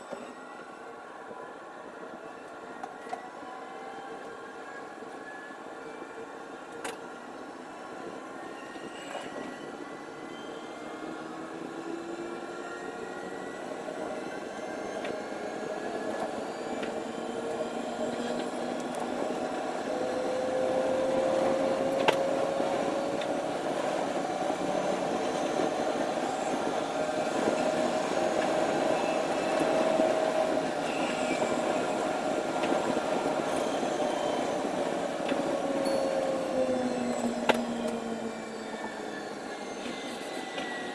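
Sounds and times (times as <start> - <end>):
electric train rolling on rails: 0.0 - 40.9.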